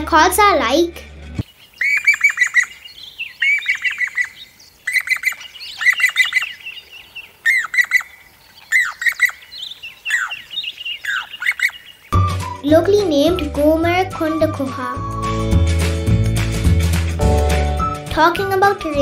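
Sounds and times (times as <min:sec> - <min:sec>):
cuckoo calling: 0:01.7 - 0:15.6.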